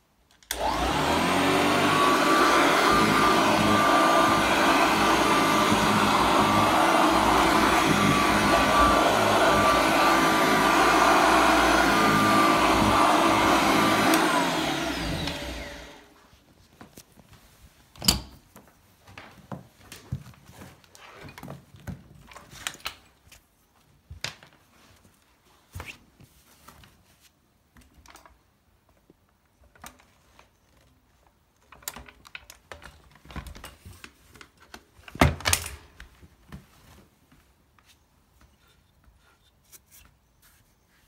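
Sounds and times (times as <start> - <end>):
vacuum cleaner knocking and rustling: 0.5 - 16.1.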